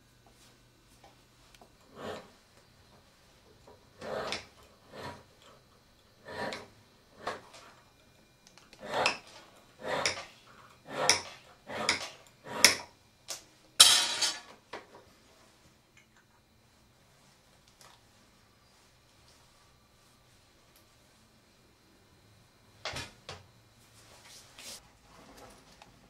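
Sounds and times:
hand file rasping: 0:04.0 - 0:05.3, 0:06.2 - 0:07.4, 0:08.8 - 0:12.8.

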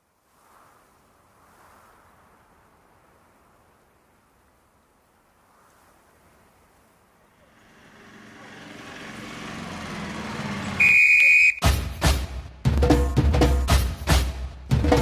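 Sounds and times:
tractor engine running: 0:07.4 - 0:11.5
loud high-pitched beep: 0:10.8 - 0:11.7
drum beat: 0:11.6 - 0:15.0.

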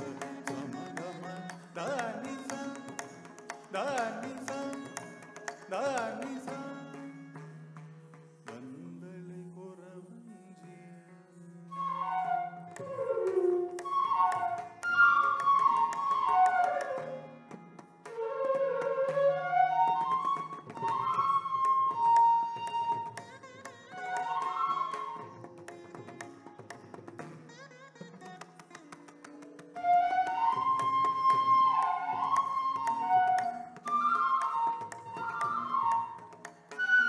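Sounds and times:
person singing: 0:00.0 - 0:05.1, 0:05.7 - 0:07.1
bamboo flute playing runs: 0:11.7 - 0:17.2, 0:18.1 - 0:25.4, 0:29.8 - 0:37.0.

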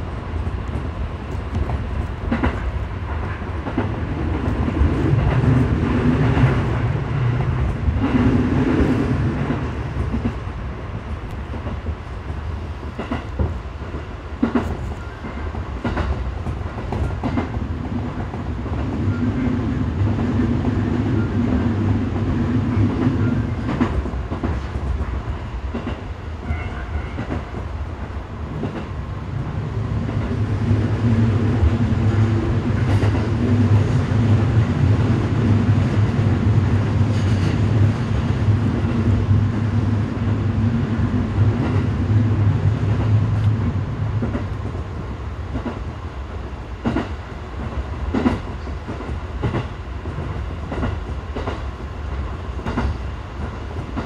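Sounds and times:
train running gear rumble: 0:00.0 - 0:54.0.

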